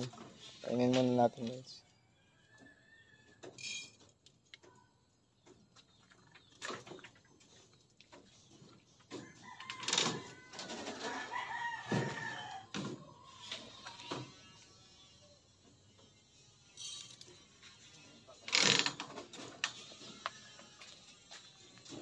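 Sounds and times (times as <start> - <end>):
rooster crowing: 1.9 - 3.4, 9.2 - 12.7.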